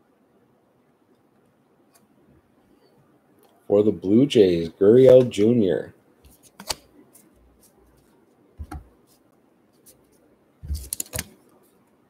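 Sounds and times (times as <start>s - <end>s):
clicks and taps: 6.3s - 6.8s
soft thumps: 8.6s - 9.0s.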